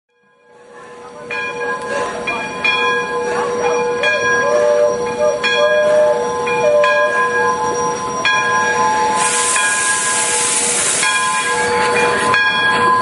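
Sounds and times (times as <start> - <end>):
steam locomotive bell ringing: 0.2 - 13.0.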